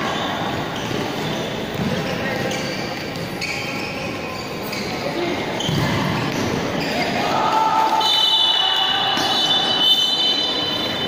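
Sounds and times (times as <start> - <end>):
crowd shouting and chattering: 0.0 - 11.0
high-pitched whistling tone: 8.0 - 11.0.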